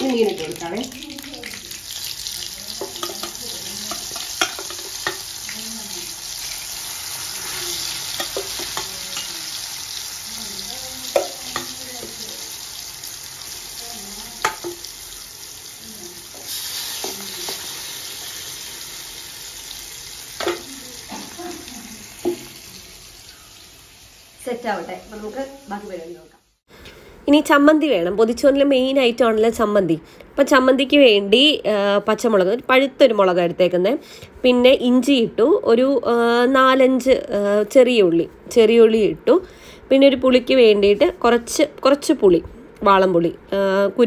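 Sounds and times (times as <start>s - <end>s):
fish sizzling in oil: 0.0s - 26.6s.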